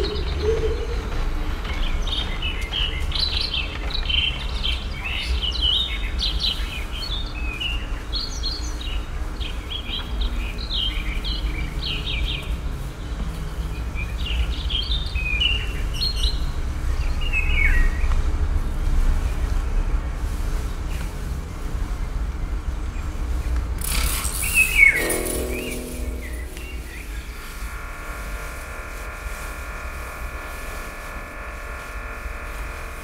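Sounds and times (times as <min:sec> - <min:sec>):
birds chirping and singing: 0:24.3 - 0:27.6
steady low rumble: 0:25.0 - 0:33.0.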